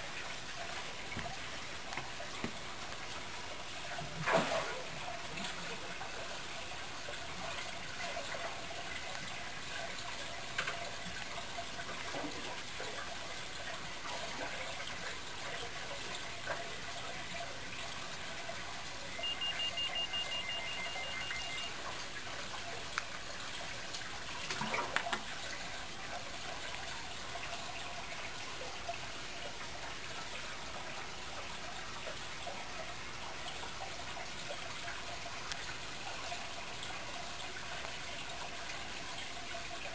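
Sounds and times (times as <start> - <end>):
aquarium water trickling and bubbling: 0.0 - 39.9
high electronic beeps: 19.1 - 21.8.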